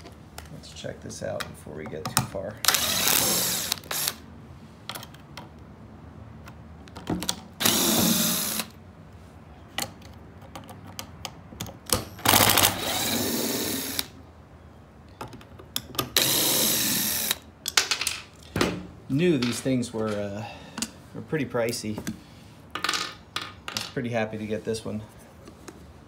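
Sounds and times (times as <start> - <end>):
cordless power driver running: 2.7 - 4.2, 7.6 - 8.8, 12.3 - 14.1, 16.2 - 17.4.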